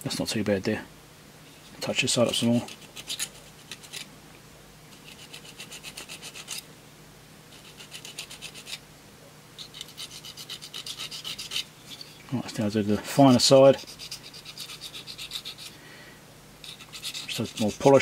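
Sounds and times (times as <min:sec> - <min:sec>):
file rubbing on metal: 0:02.3 - 0:04.1, 0:04.9 - 0:06.6, 0:07.5 - 0:08.8, 0:09.6 - 0:12.2, 0:13.4 - 0:15.8, 0:16.6 - 0:18.0.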